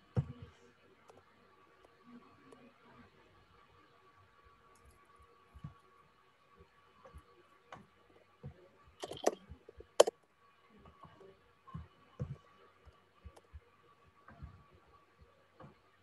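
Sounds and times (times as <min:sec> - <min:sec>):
keyboard typing: 0:09.0 - 0:10.1.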